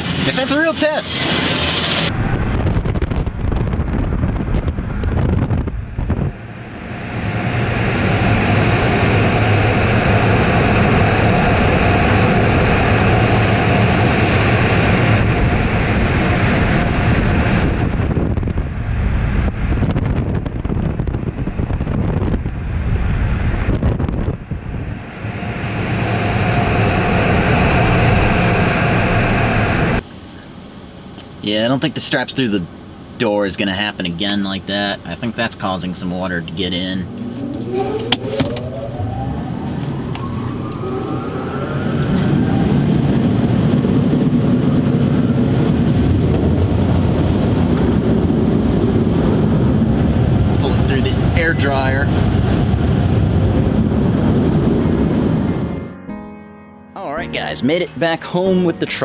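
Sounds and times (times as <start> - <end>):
car wash water and air rushing: 0.0 - 20.6, 22.5 - 33.4
wind buffeting microphone: 1.2 - 30.0, 36.2 - 56.0.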